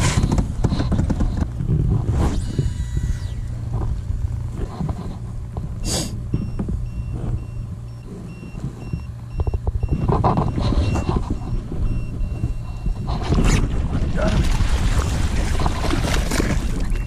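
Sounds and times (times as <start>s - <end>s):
knocks and rumble: 0.0s - 17.0s
high electronic beeping: 6.3s - 13.1s.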